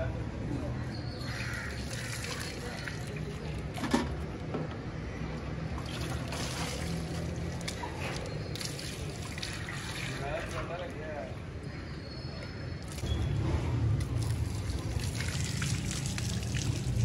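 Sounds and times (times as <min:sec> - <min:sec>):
water poured into steel basin: 0:01.2 - 0:03.8, 0:05.8 - 0:10.7, 0:14.0 - 0:17.0
water tipped onto ground: 0:01.3 - 0:04.3, 0:12.8 - 0:17.0.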